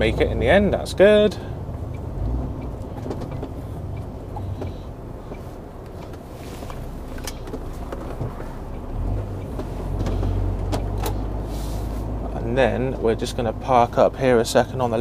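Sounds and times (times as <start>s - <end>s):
diesel engine running at low revs: 0.0s - 15.0s
faint clicks in cab: 1.8s - 11.2s.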